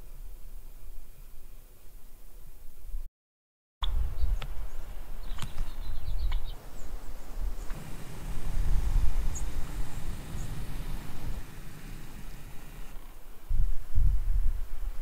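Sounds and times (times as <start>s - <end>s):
sharp bird calls: 7.5s - 13.0s
wind rumbling on microphone: 7.5s - 15.0s.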